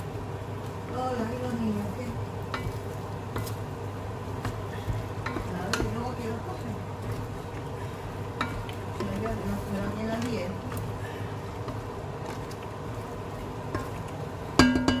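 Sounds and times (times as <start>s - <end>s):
stew sizzling: 0.0s - 15.0s
wooden spatula scraping a pot: 0.7s - 14.6s
spatula knocking against pot: 4.4s - 6.2s, 14.6s - 15.0s.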